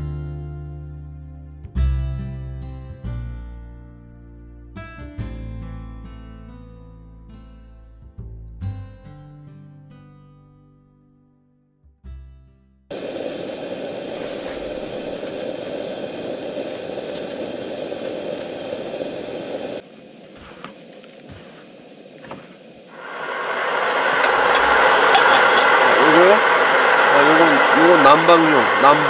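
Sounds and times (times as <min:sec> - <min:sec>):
pressurized burner roaring: 0:12.9 - 0:29.0.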